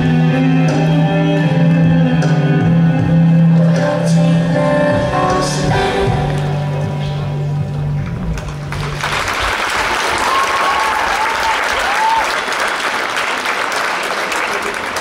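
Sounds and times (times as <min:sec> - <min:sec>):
audience applauding: 0:08.4 - 0:15.0.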